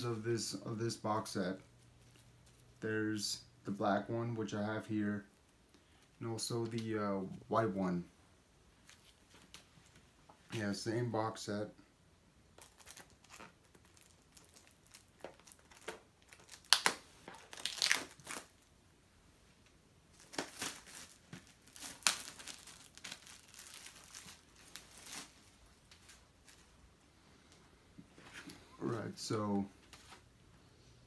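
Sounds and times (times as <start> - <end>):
packaging crinkling and rustling: 12.6 - 18.7, 20.1 - 26.8.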